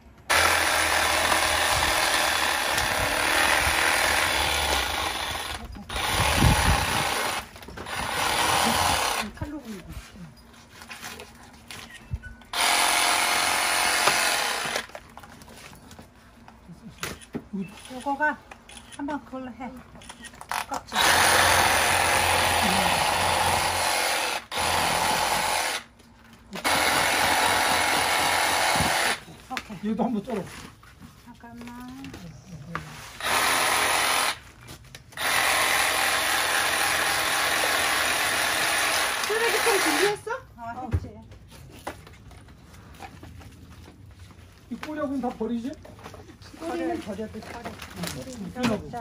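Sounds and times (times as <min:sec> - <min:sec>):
reciprocating saw cutting: 0:00.3 - 0:09.3, 0:20.9 - 0:25.9, 0:33.2 - 0:34.4, 0:35.2 - 0:40.2.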